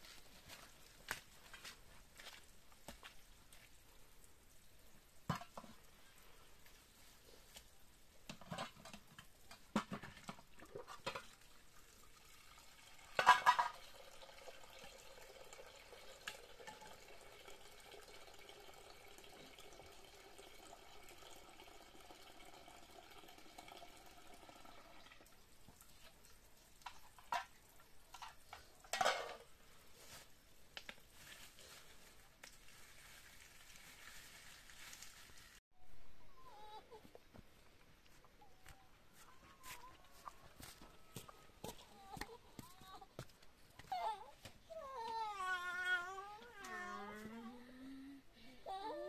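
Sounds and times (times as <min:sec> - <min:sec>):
water running into metal pot: 0:08.6 - 0:25.5.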